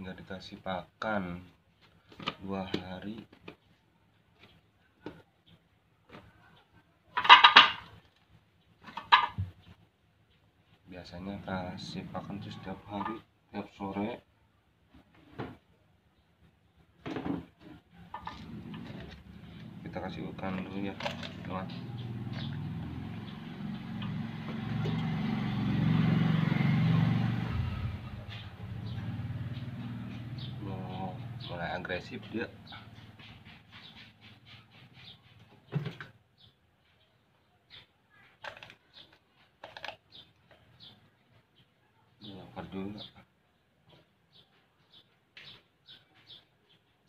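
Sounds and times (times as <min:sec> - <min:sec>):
hard objects clattering: 0:07.1 - 0:09.7, 0:17.0 - 0:26.0, 0:38.3 - 0:41.0
low motor hum: 0:18.1 - 0:33.2.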